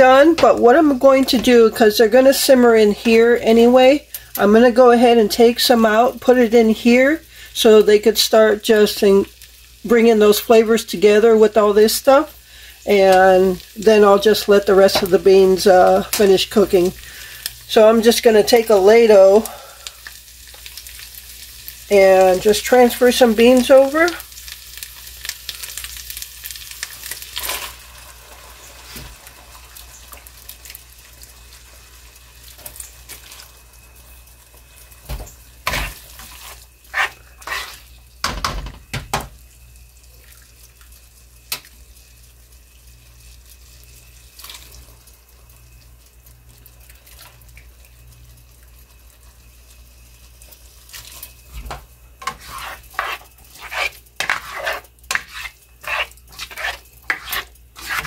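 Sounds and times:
sizzling in a pan: 0.0 - 58.0
stirring strokes: 35.6 - 37.9, 52.2 - 58.0.

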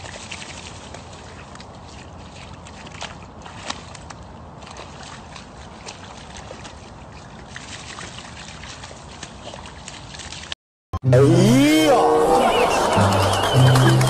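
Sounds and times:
dog splashing in mud: 0.0 - 10.6.

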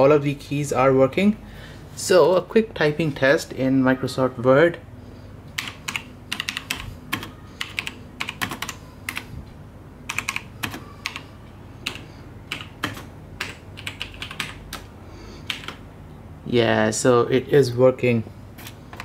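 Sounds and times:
mechanical keyboard typing: 5.6 - 9.3, 10.1 - 11.2, 11.8 - 15.8.

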